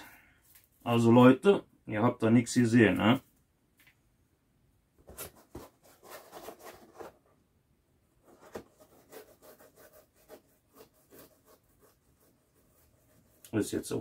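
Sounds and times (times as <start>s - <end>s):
brush rubbing strokes: 8.8s - 14.0s.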